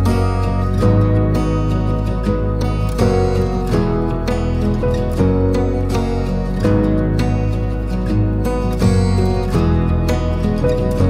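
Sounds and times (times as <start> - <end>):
plucked acoustic guitar notes: 0.0 - 11.0
steady low bass: 0.0 - 11.0.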